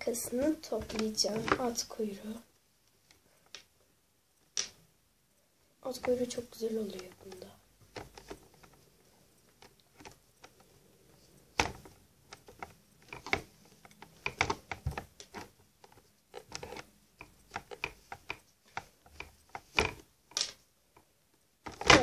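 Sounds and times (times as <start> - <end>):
small clicks and rustles: 5.8 - 22.0.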